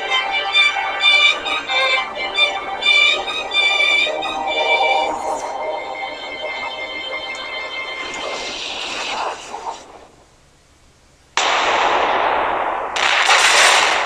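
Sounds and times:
noisy rush: 0:00.0 - 0:14.0
loud explosion blasts: 0:11.4 - 0:14.0.

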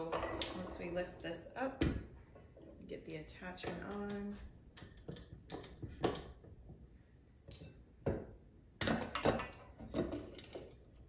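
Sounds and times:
stand mixer parts clicking and clattering: 0:08.8 - 0:11.0.

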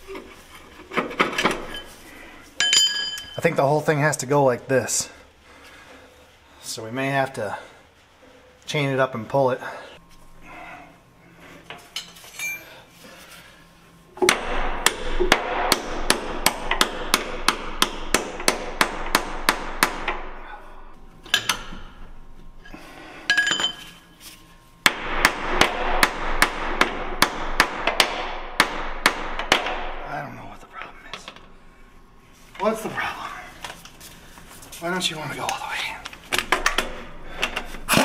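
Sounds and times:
light metal clinks: 0:02.6 - 0:03.4.

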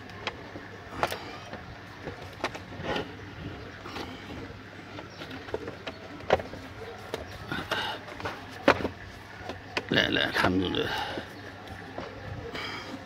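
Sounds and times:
plastic case being handled: 0:00.9 - 0:10.0
plastic clicks and knocks: 0:08.1 - 0:09.9.

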